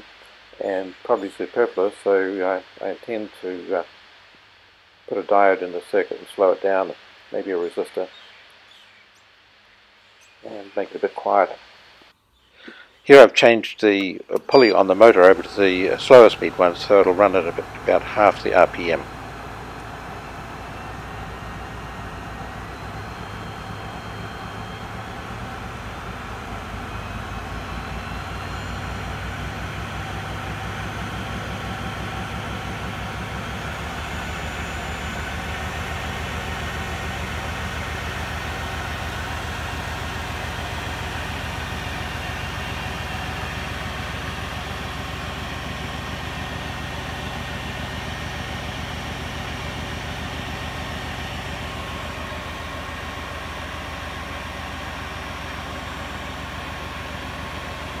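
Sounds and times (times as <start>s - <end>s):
lathe running: 14.0s - 58.0s.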